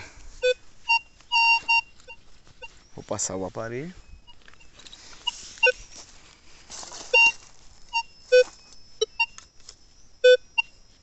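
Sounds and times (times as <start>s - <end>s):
soft rustling: 0.2s - 8.9s
metal detector beeps: 0.3s - 6.1s, 6.7s - 11.0s.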